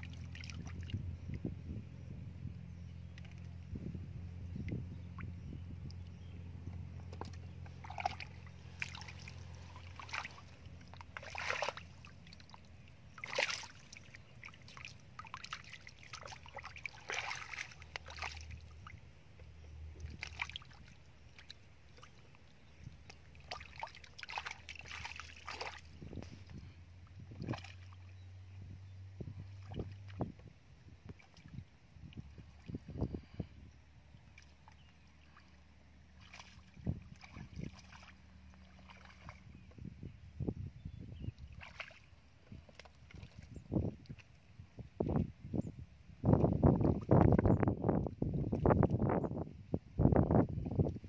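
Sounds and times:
hands splashing in muddy water: 7.0s - 19.0s, 20.0s - 22.2s, 23.0s - 26.6s, 27.3s - 28.0s, 36.1s - 39.7s, 41.4s - 44.3s.

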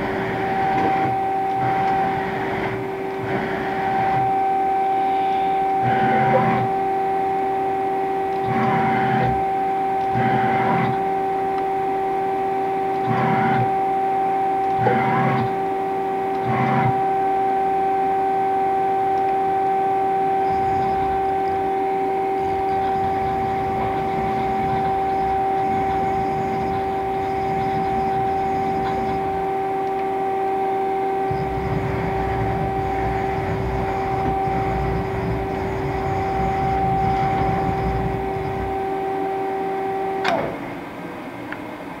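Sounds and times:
machine electric hum: 0.0s - 42.0s
sharp click: 40.2s - 40.6s.

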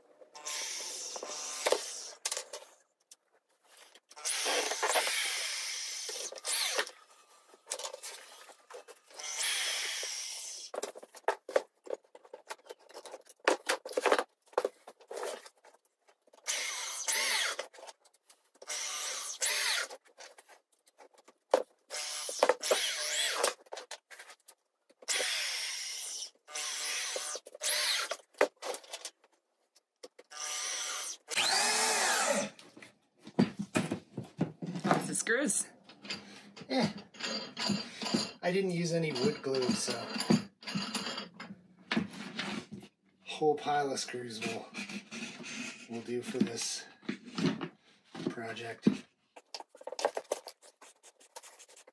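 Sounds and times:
power drill driving screws: 0.4s - 2.2s, 4.2s - 7.1s, 9.0s - 10.8s, 16.4s - 17.7s, 18.6s - 20.0s, 21.9s - 23.6s, 25.1s - 28.3s, 30.3s - 32.5s.

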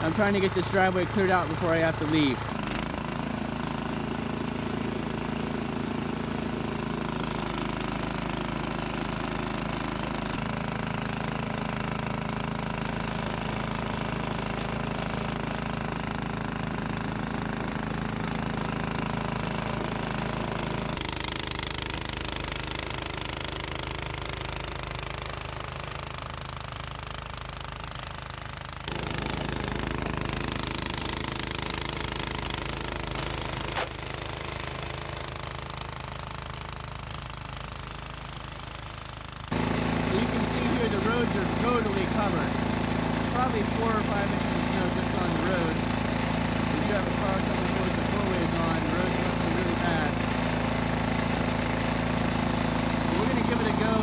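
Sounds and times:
snowblower engine and auger churning: 0.0s - 54.0s.

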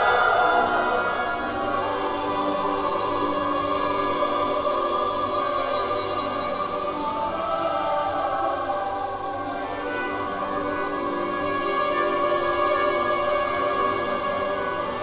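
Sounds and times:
music of long held chords: 0.0s - 15.0s.

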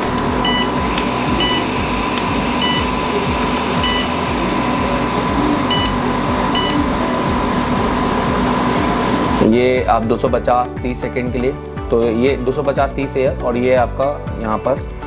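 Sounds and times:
hot air blower hissing: 0.0s - 9.6s
short beeps: 0.4s - 1.8s, 2.6s - 3.0s, 3.8s - 4.2s, 5.7s - 6.9s.

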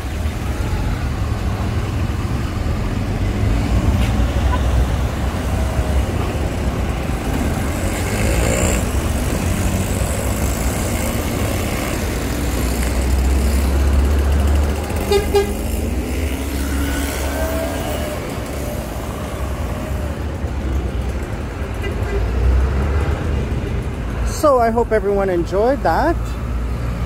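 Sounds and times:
road traffic rumble: 0.0s - 27.0s
short horn toot: 15.1s - 15.6s.

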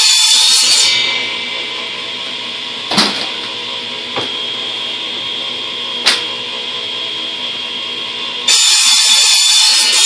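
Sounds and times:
saw cutting plastic pipe: 0.0s - 1.3s, 8.5s - 10.0s.

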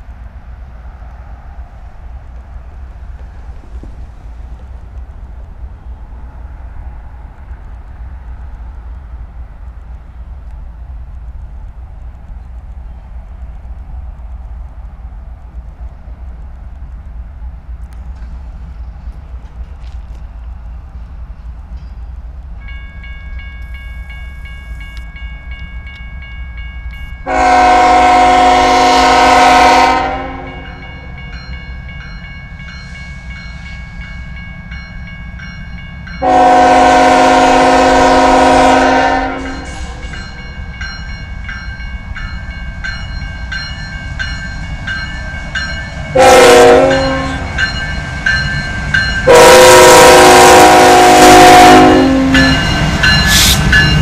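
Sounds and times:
low rumble of locomotives: 0.0s - 54.0s
locomotive air horn blasts: 27.2s - 30.8s, 36.2s - 40.1s, 46.1s - 47.5s, 49.2s - 53.8s
steady high ringing: 30.4s - 36.7s, 39.4s - 49.6s, 51.7s - 54.0s.

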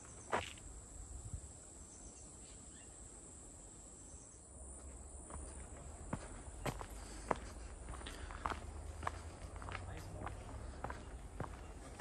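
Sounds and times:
forest insects droning: 0.0s - 12.0s
footstep on trail: 0.1s - 0.6s, 4.7s - 12.0s.

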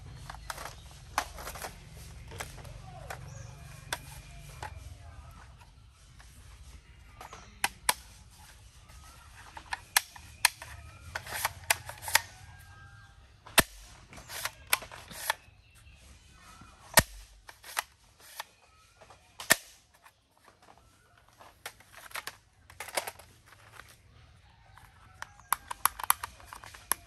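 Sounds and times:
plastic toy gun clicking: 0.3s - 4.7s, 9.4s - 12.4s, 13.5s - 15.5s, 16.9s - 18.6s, 19.4s - 24.0s, 24.8s - 27.0s.

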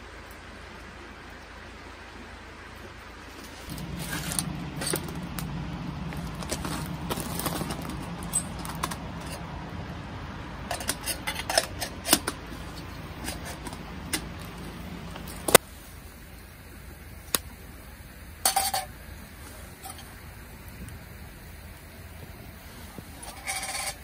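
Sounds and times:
low steady hum: 0.0s - 24.0s
kettle metal clicks and clinks: 3.7s - 9.5s, 10.7s - 15.6s, 18.4s - 19.0s, 19.8s - 20.2s, 23.2s - 24.0s.

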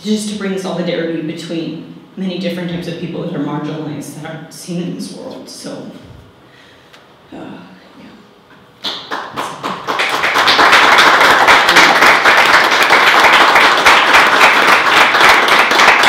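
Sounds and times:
audience applauding: 8.8s - 16.0s.

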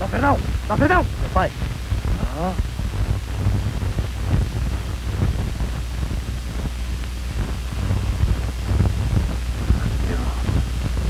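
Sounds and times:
faint crackles: 0.0s - 11.0s
film soundtrack hum and hiss: 0.0s - 11.0s.

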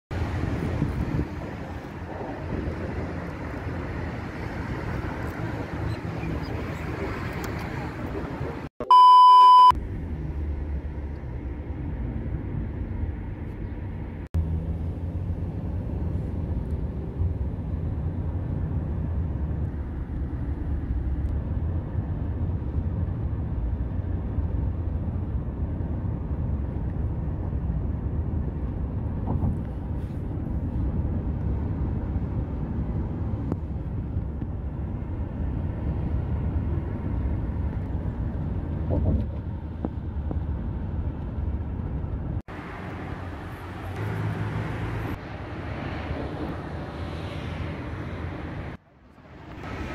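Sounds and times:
car road and engine noise: 0.1s - 49.9s
loud electronic beep: 8.8s - 9.7s.

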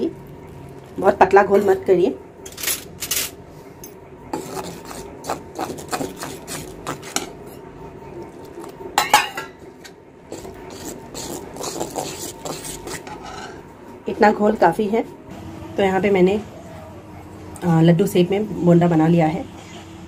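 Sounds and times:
utensil scraping batter in bowl: 4.3s - 7.6s, 10.3s - 13.7s.

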